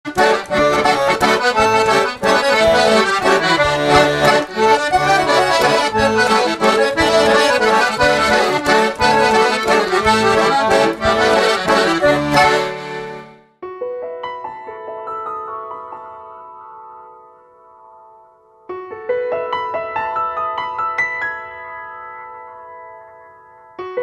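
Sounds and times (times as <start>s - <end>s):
piano accordion playing: 0.1s - 13.6s.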